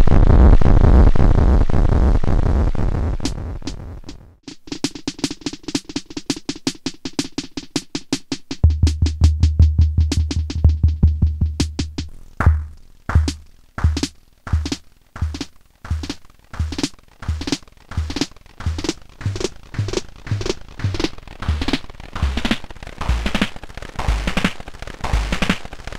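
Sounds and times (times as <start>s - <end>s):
electronic drum clicks with delay: 3.2s - 25.9s
deep bass thump: 8.6s - 14.0s.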